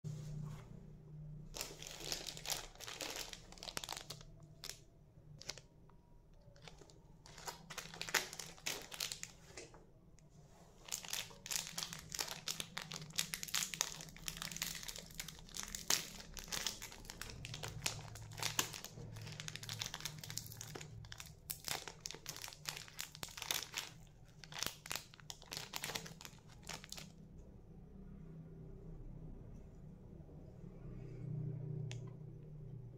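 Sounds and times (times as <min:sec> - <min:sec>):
plastic wrapper crinkling: 0:01.5 - 0:09.8, 0:10.8 - 0:27.2.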